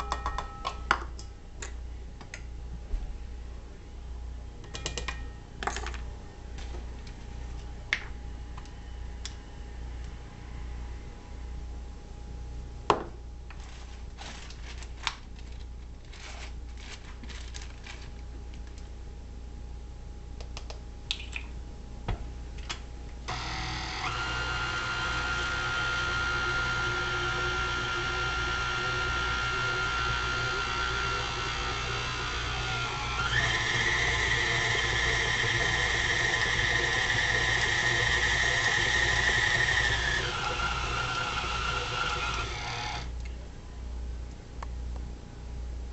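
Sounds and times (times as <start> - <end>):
stand mixer motor whining: 23.3 - 43.1.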